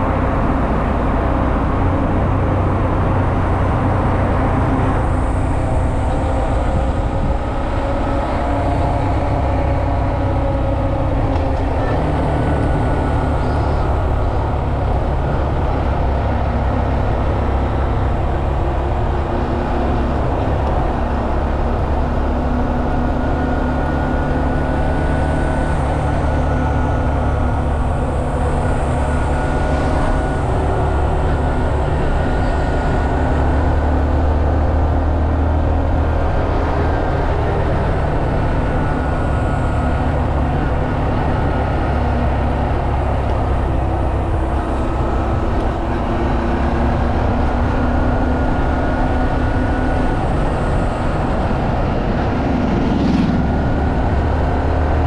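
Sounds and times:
heavy low rumble: 0.0 - 55.0.

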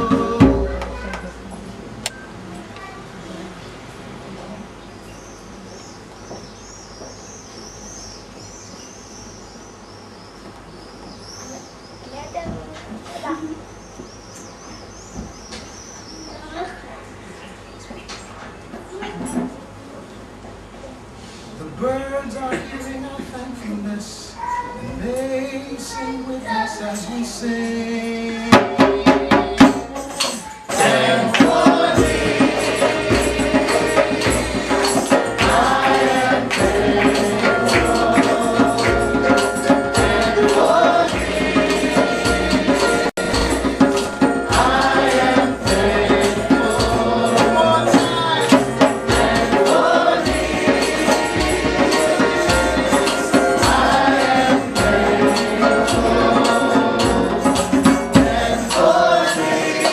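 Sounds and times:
group singing: 0.0 - 1.1, 27.0 - 59.9
hand drum beating: 0.0 - 1.3, 28.5 - 58.8.

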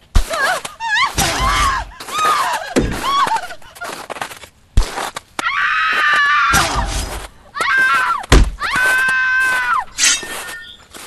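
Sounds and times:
high-pitched screams: 7.6 - 10.8
heavy thuds: 8.2 - 8.7.

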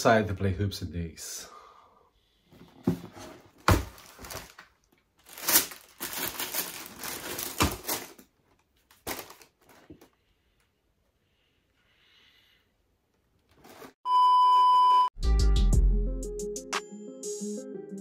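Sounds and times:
knocks and clicks of packaging: 2.6 - 8.2
packaging rustling and crinkling: 3.0 - 10.2.

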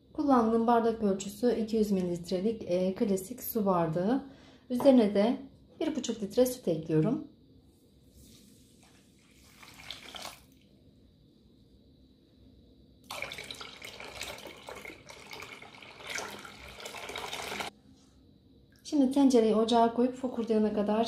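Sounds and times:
milk pouring into a saucepan: 9.2 - 10.7, 13.0 - 17.7.

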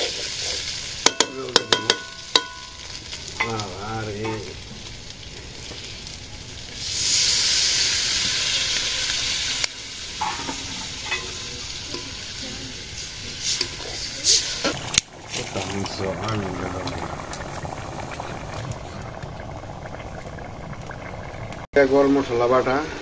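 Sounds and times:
liquid sizzling in hot pan: 0.0 - 23.0
metal spatula knocking on pan rim: 1.1 - 2.7.

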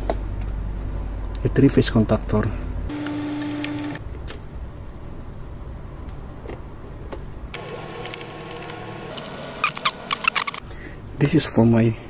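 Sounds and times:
steady background hum: 2.5 - 12.0
wire and screwdriver clicks: 7.9 - 10.7.

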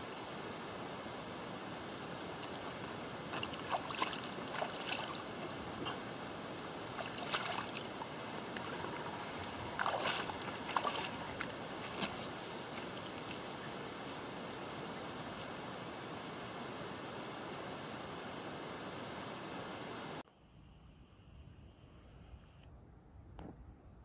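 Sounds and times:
shallow stream flowing: 0.0 - 20.2
splashes in water: 2.0 - 13.8
footsteps on gravel: 7.0 - 13.0.

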